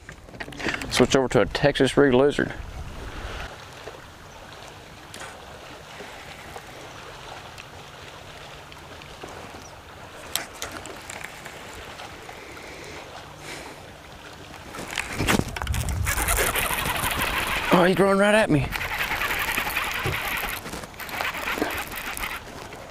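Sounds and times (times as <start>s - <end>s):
wind on microphone: 2.3s - 3.5s, 14.7s - 22.9s
water lapping against boat hull: 2.6s - 22.9s.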